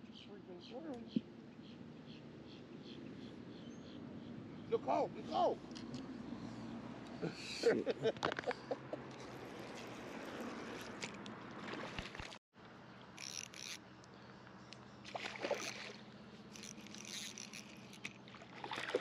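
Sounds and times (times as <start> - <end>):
fish splashing in water: 15.0 - 19.0.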